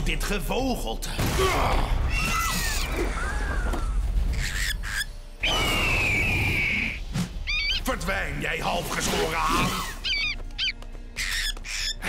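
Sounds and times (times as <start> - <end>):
background music: 0.0 - 12.0
cartoon birds squawking: 2.1 - 8.1, 9.0 - 12.0.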